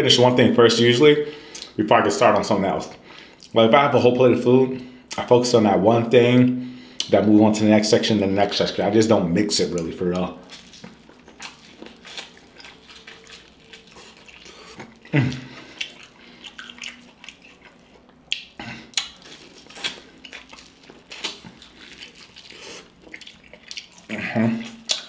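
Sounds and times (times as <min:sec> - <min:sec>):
wet chewing and lip smacking: 0:09.6 - 0:25.0.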